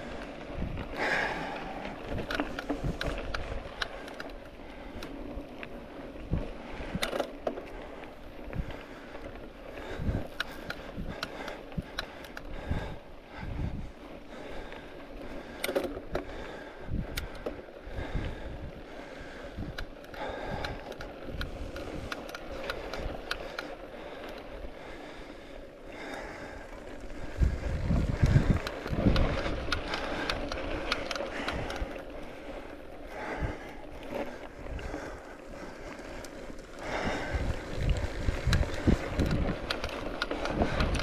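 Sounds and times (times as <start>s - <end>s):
wind buffeting microphone: 0.0s - 4.0s, 8.4s - 14.6s, 16.2s - 23.5s, 26.0s - 41.0s.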